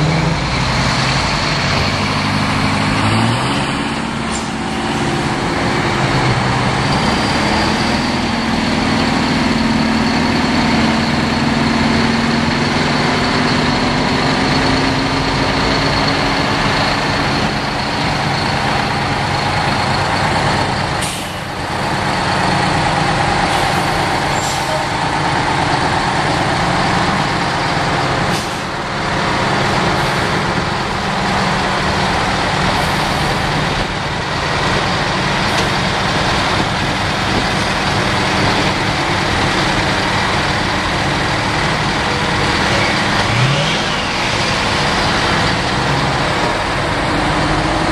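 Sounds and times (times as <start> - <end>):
heavy diesel truck engines: 0.0 - 47.9.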